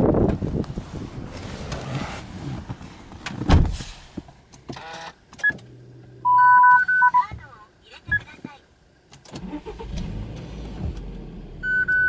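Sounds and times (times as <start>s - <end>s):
car door thump: 3.4s - 3.9s
short beep: 11.6s - 12.0s.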